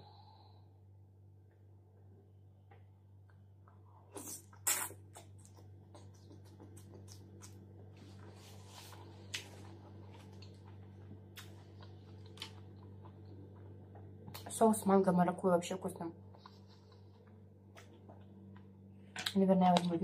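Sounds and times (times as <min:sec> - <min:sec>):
person chewing crisp lettuce: 0:04.1 - 0:14.5.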